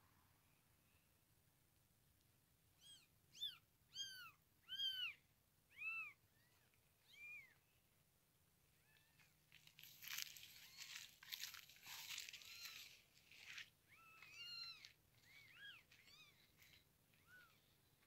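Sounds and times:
crackling rustle: 8.8 - 17.8.

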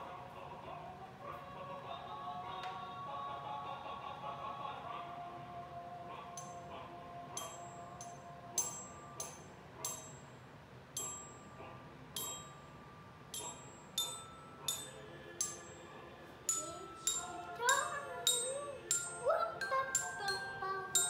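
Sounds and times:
glockenspiel notes: 7.4 - 10.4, 11.0 - 21.0.

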